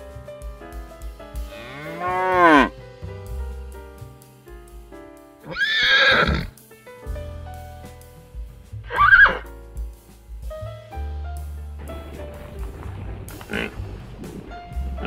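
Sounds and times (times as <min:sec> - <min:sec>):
background music with piano: 0:00.0 - 0:15.0
animal calls: 0:08.9 - 0:09.4, 0:13.4 - 0:13.8.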